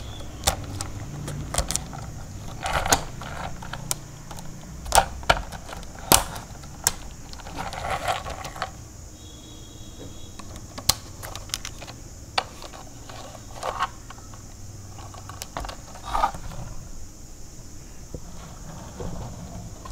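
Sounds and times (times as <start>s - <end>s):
plastic toy parts clicking and rattling: 0.0s - 8.8s, 10.4s - 16.8s
rustling: 0.0s - 8.9s, 10.1s - 19.9s.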